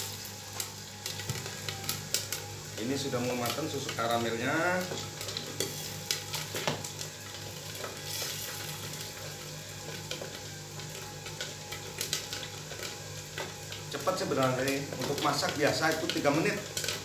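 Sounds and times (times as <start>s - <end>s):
popcorn sizzling in a kettle: 0.0s - 17.0s.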